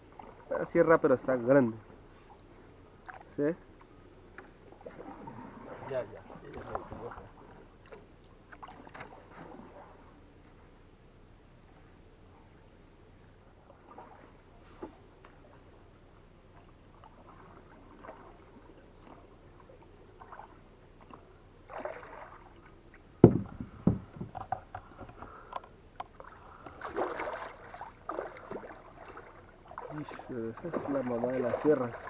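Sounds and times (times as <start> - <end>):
fish splashing in water: 19.8 - 22.8, 26.1 - 32.0
heavy thuds on wooden hull: 23.2 - 25.4.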